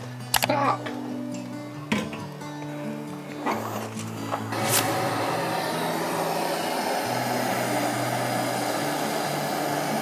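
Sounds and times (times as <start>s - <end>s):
hand torch flame roaring: 3.3s - 10.0s.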